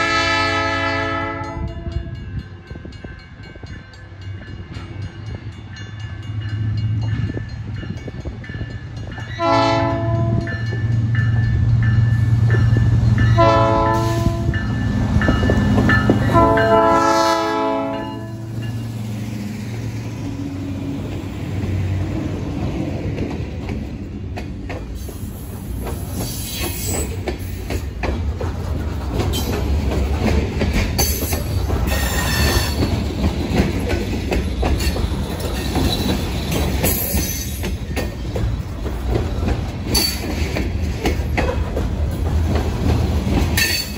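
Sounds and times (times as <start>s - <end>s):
train air horn blasts: 0.0s - 2.2s, 9.4s - 10.5s, 13.3s - 14.6s, 16.3s - 18.6s
train wheels clattering on rails: 1.3s - 43.9s.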